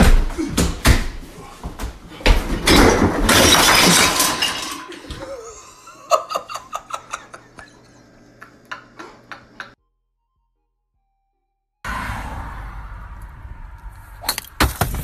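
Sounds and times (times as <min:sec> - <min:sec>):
glass bottles clinking: 0:02.7 - 0:05.5.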